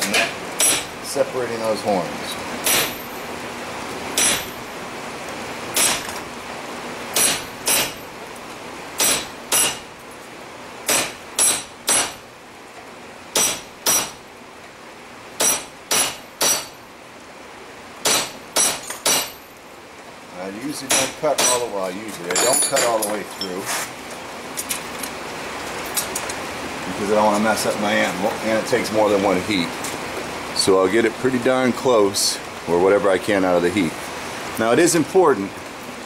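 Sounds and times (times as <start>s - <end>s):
hammer striking chisel on metal: 0.0s - 0.9s, 2.6s - 3.0s, 4.2s - 4.6s, 5.8s - 6.2s, 7.2s - 8.0s, 9.0s - 9.8s, 10.9s - 12.2s, 13.3s - 14.2s, 15.4s - 16.8s, 18.0s - 19.4s, 20.9s - 21.7s, 22.3s - 23.6s.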